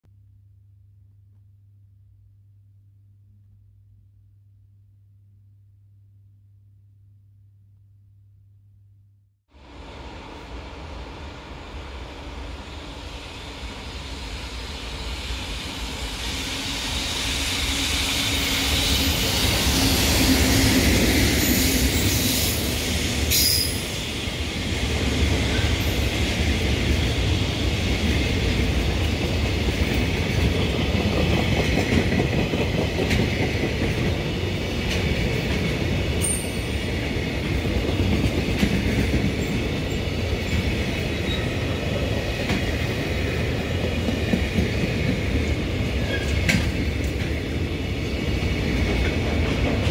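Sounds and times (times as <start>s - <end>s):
freight train rolling past: 9.5s - 49.9s
high wheel squeal: 16.2s - 24.4s.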